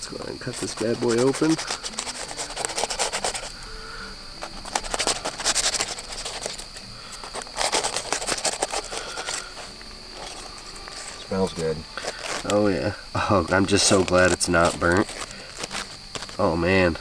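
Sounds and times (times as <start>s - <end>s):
crickets chirping: 0.0s - 17.0s
foil crinkling: 0.4s - 3.6s, 4.4s - 16.7s
knife slitting foil packet: 0.6s - 3.5s, 4.4s - 11.2s, 12.0s - 12.7s, 13.5s - 16.5s.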